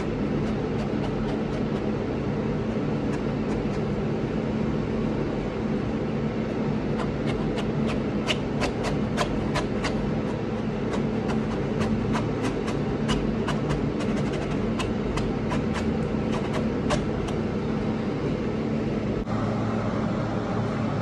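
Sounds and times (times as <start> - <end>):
low mechanical hum and rumble: 0.0 - 21.0
rapid sharp clicks: 7.0 - 17.4.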